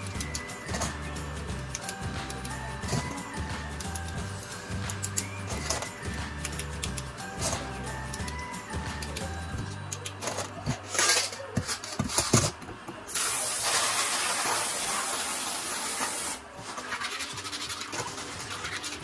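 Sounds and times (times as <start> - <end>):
faucet spraying water: 13.1 - 16.4.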